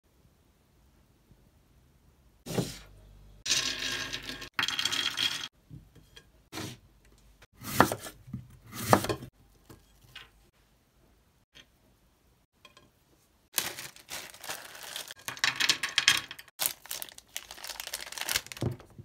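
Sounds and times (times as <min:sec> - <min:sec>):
knife cutting an apple: 0:07.6 - 0:09.3.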